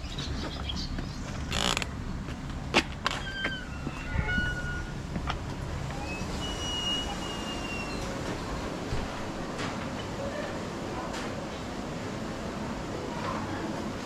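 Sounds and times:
thin high squeaks: 3.0s - 5.0s, 5.9s - 8.2s.

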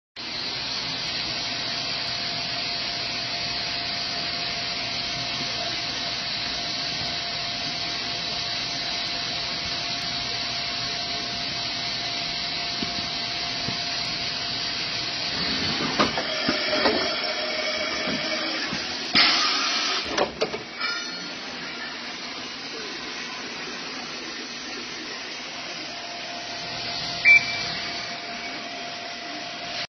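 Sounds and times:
machine hiss: 0.2s - 25.2s
loud burst of hiss: 11.0s - 21.0s
thin steady hum: 20.8s - 29.6s.

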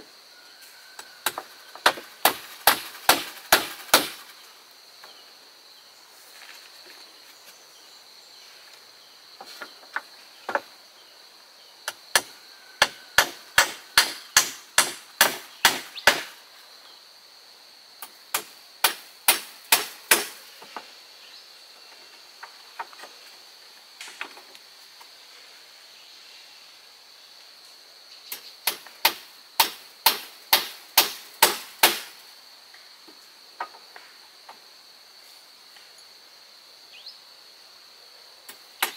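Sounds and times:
hand tool striking wood: 1.2s - 4.3s, 12.1s - 16.3s, 18.3s - 20.9s, 28.6s - 32.1s.

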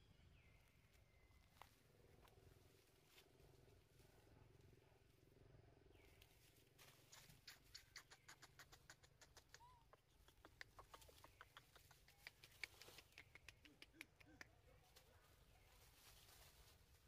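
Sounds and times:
leaves and twigs crackling: 0.3s - 5.3s, 5.9s - 7.8s, 14.7s - 17.0s.

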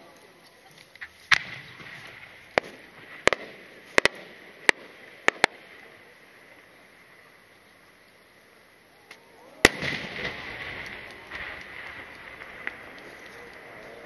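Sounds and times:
sharp firework pops: 0.8s - 6.0s, 9.1s - 14.0s.

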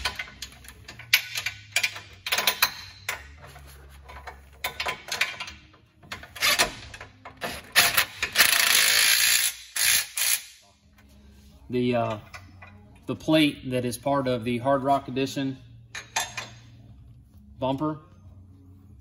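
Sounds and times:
electric ratchet running: 7.7s - 10.6s.

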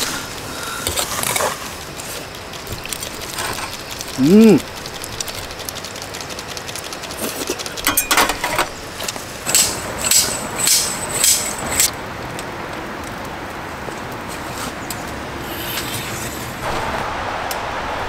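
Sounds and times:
rain hiss: 0.0s - 18.0s
metal utensils clinking and scraping: 7.8s - 8.8s, 9.4s - 11.9s.

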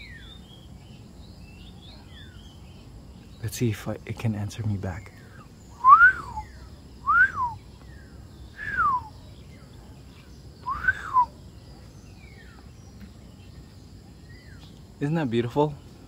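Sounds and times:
bird whistling call: 5.7s - 9.2s, 10.6s - 11.4s
man whistling bird call: 5.8s - 7.6s, 8.5s - 9.2s, 10.6s - 11.4s.

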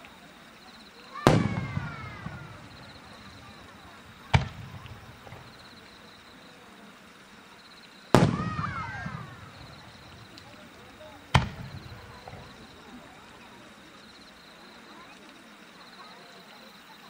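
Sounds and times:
firework shells bursting: 1.1s - 6.0s, 8.1s - 13.5s.

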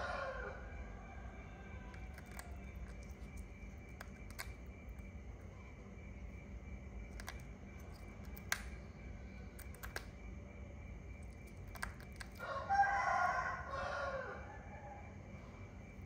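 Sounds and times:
rooster crowing: 0.0s - 3.0s, 12.4s - 15.6s
faint clicks: 1.9s - 5.1s, 9.6s - 10.2s.

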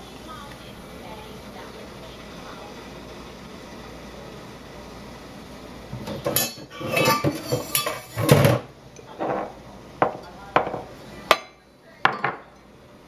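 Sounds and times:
metal kitchenware clattering: 6.1s - 8.6s.

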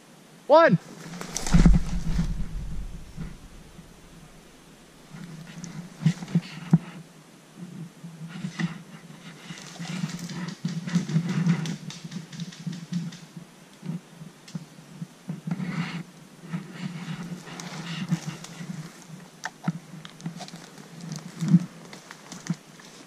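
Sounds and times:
rustling through undergrowth: 0.8s - 6.7s, 17.0s - 23.0s
sharp thumps: 1.2s - 4.7s.

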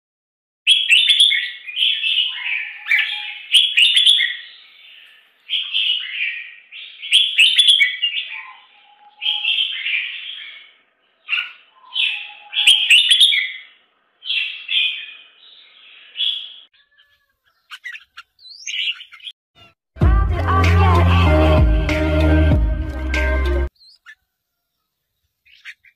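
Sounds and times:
nestlings begging with shrill chirps: 0.7s - 13.7s, 14.3s - 19.8s, 23.7s - 24.2s.

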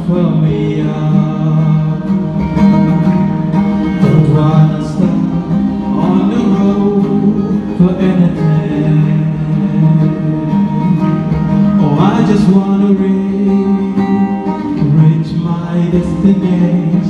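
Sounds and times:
man singing: 0.0s - 2.9s, 3.8s - 17.0s
acoustic guitar: 0.0s - 17.0s.

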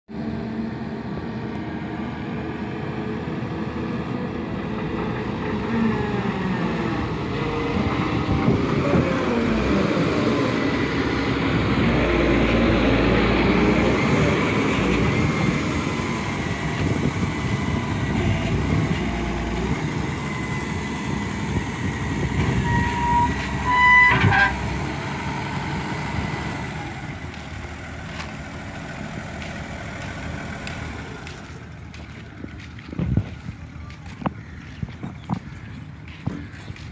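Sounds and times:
excavator diesel engine running: 0.1s - 36.9s
short horn tones: 22.5s - 24.7s.

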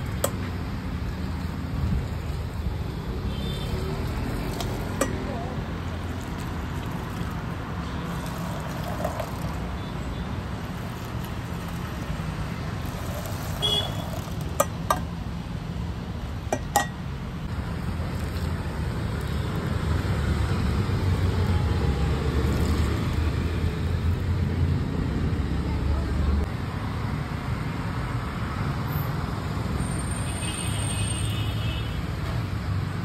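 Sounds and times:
street traffic rumble: 0.0s - 33.0s
ladle clinking against pot: 4.6s - 5.3s, 13.0s - 15.1s, 16.5s - 17.0s.

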